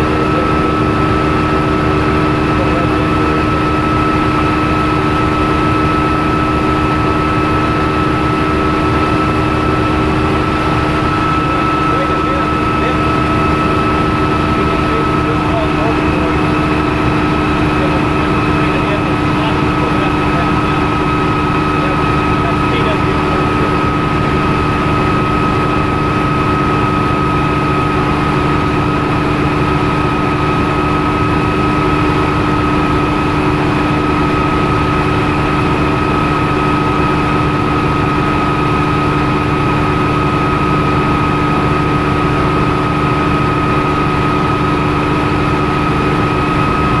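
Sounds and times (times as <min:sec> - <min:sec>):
helicopter engine and rotor: 0:00.0 - 0:47.0.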